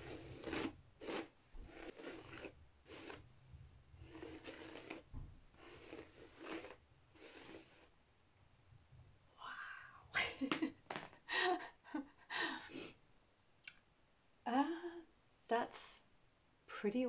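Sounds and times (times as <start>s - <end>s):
hairbrush swishing through hair: 0.0s - 3.3s, 4.0s - 7.9s.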